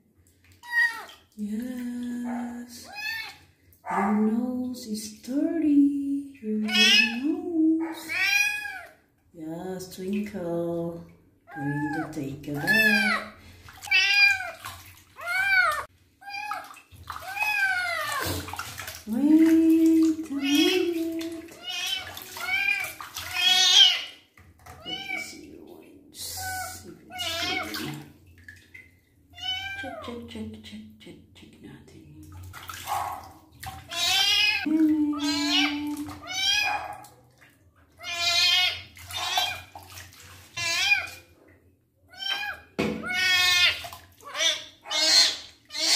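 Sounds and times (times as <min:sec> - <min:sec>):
water splashing in a basin: 0:00.0 - 0:09.1, 0:09.7 - 0:30.8, 0:32.1 - 0:45.9
kitten meowing: 0:27.1 - 0:27.9, 0:29.4 - 0:29.9.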